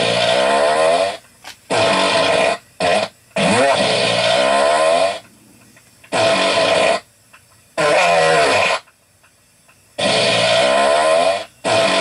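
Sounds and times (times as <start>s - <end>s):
long pitched farts: 0.0s - 5.2s, 6.1s - 7.1s, 7.8s - 8.9s, 10.0s - 12.0s.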